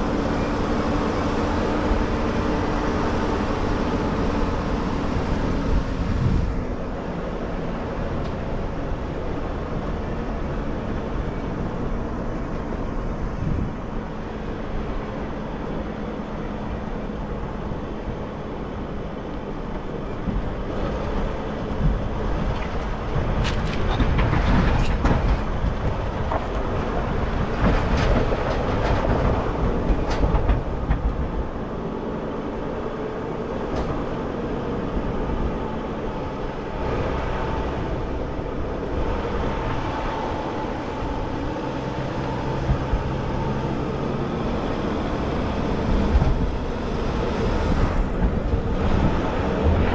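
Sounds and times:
van engine under load: 0.0 - 49.9
knocks and rattles: 21.8 - 31.4.

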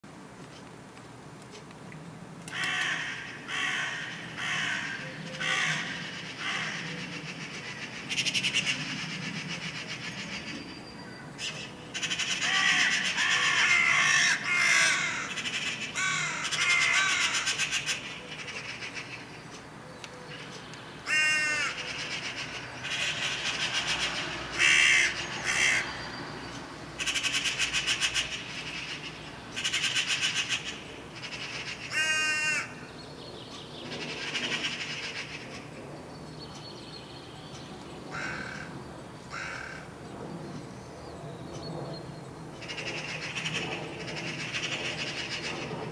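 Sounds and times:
crows cawing harshly: 2.5 - 10.2, 11.4 - 19.3, 20.3 - 26.0, 27.0 - 32.9, 38.1 - 40.0
crow rattling call: 2.5 - 10.5, 11.4 - 19.3, 20.3 - 26.0, 27.0 - 32.9, 34.0 - 35.7, 38.1 - 40.0, 42.6 - 45.9.

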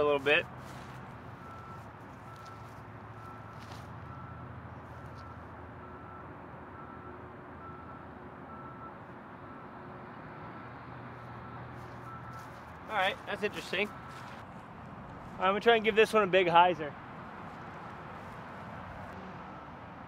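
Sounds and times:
reversing alarm beeping: 1.4 - 9.7, 11.4 - 12.6, 13.8 - 14.3, 19.4 - 19.9.

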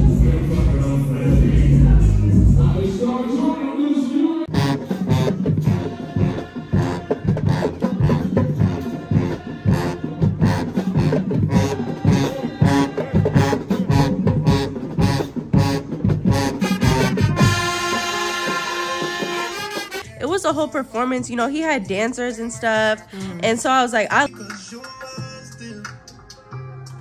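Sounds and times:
drums beating: 0.0 - 3.0, 4.5 - 22.1
marching band playing: 4.5 - 20.0.

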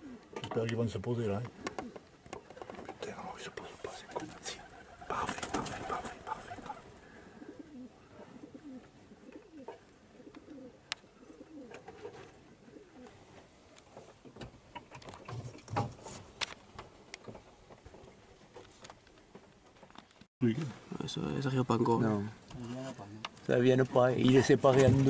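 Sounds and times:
wood pigeons cooing: 0.0 - 0.4, 1.5 - 13.2.

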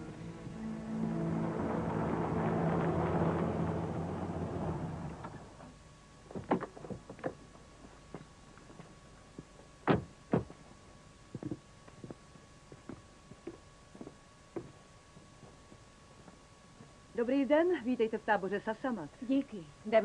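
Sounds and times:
vehicle engine running: 0.0 - 5.6.

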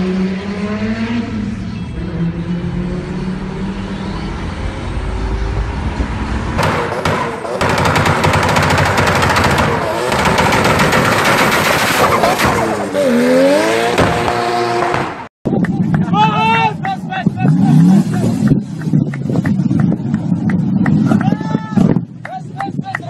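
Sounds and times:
exhaust backfire pops and bangs: 6.5 - 12.8, 13.9 - 22.2.

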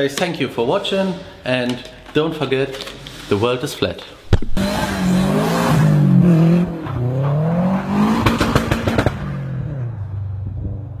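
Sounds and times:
exhaust crackling pops: 4.3 - 5.0, 8.2 - 9.4
car engine revving: 4.3 - 11.0.

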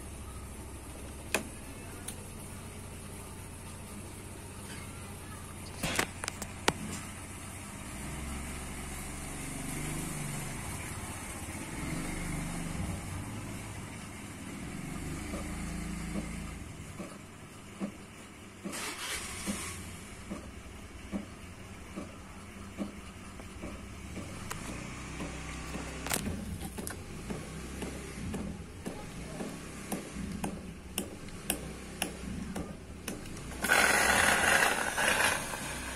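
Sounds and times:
espresso machine pump humming: 33.5 - 35.9.

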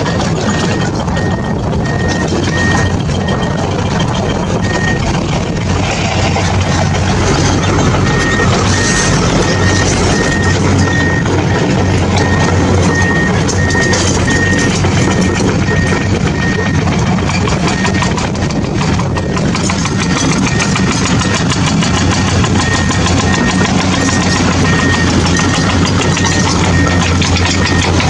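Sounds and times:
engine running: 0.0 - 28.0
high reversing alarm beeps: 0.0 - 28.0.

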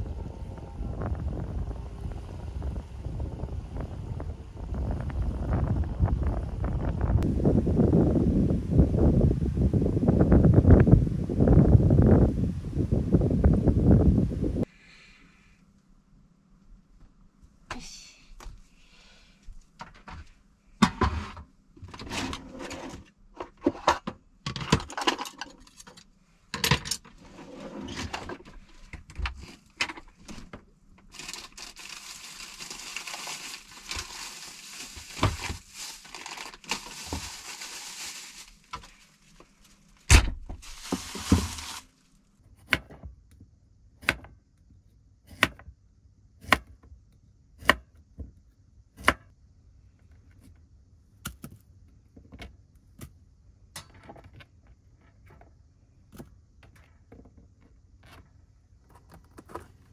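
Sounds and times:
rustling and knocking of objects: 28.0 - 42.0.

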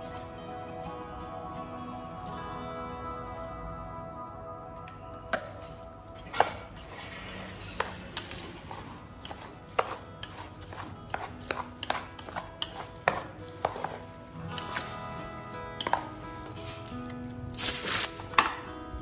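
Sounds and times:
chopsticks stirring filling: 5.6 - 18.0
chopsticks knocking metal pot: 7.6 - 14.8, 15.8 - 16.2.

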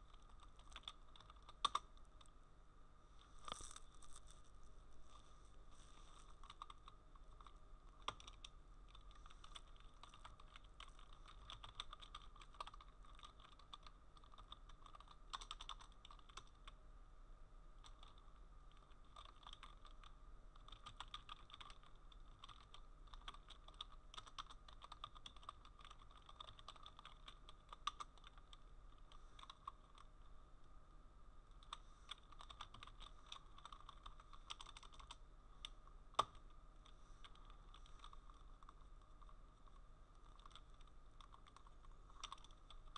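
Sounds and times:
faint steady hum: 0.0 - 42.9
typing on a keyboard: 0.1 - 2.3, 6.4 - 16.8, 17.8 - 30.1, 31.6 - 36.4, 37.2 - 42.9.

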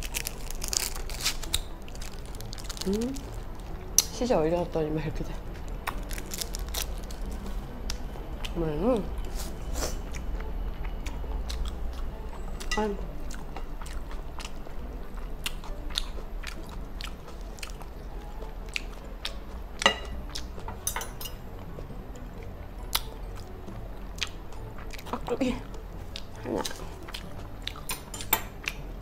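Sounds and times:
chewing: 0.0 - 4.1, 5.5 - 8.6, 9.2 - 20.8, 21.5 - 29.0.

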